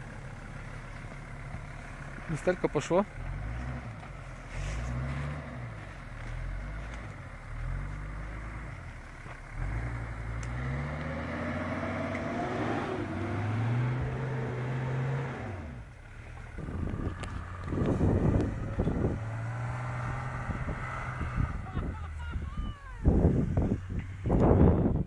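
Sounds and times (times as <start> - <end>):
engine revving under load: 2.3 - 15.9, 16.5 - 22.2.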